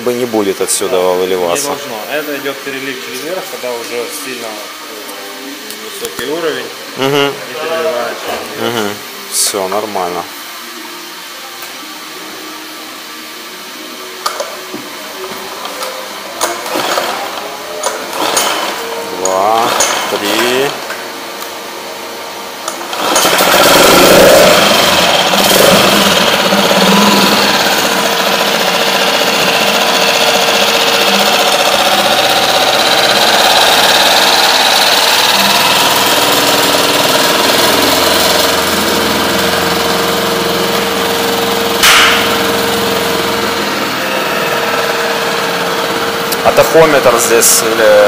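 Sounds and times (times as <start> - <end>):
outboard motor running: 16.6 - 20.8, 22.0 - 48.0.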